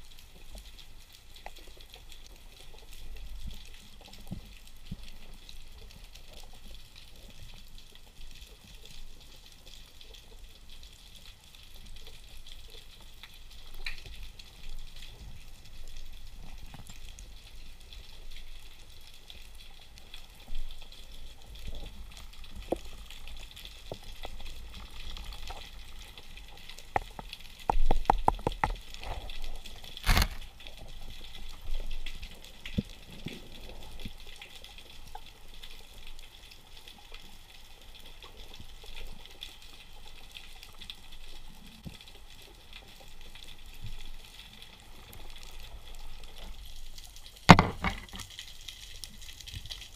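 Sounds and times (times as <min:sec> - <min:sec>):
faint underwater crackling hiss: 0:00.0 - 0:49.9
sharp knock: 0:47.5 - 0:48.1.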